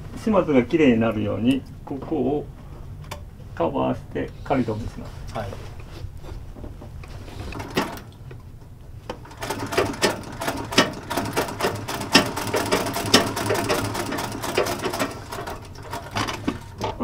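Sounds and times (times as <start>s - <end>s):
sewing machine stitching: 7.2s - 8.1s, 9.1s - 17.0s.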